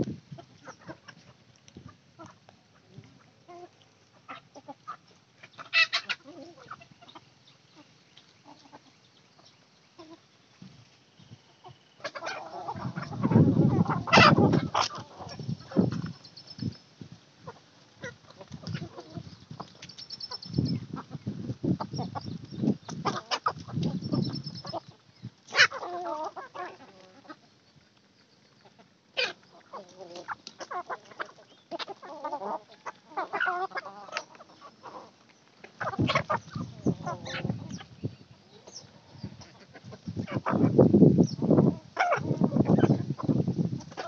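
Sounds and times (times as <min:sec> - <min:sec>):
hens clucking: 0:00.0 - 0:16.8, 0:17.4 - 0:44.0
chickens scuffling: 0:00.0 - 0:44.0
chickens pecking clicks: 0:17.5 - 0:20.4, 0:25.6 - 0:32.4.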